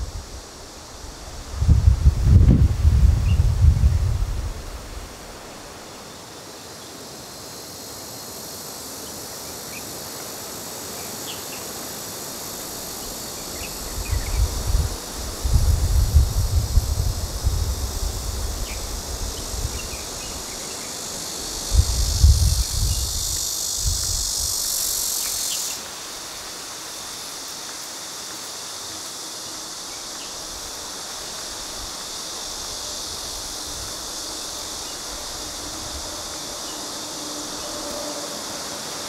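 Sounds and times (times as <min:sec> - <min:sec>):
high-pitched insect chorus: 0:00.0 - 0:39.0
low rumbling gusts: 0:01.3 - 0:05.1, 0:14.0 - 0:20.2.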